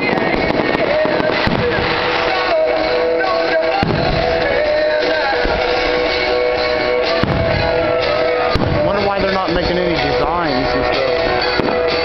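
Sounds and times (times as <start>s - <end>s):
firework boom: 0.0s - 9.3s.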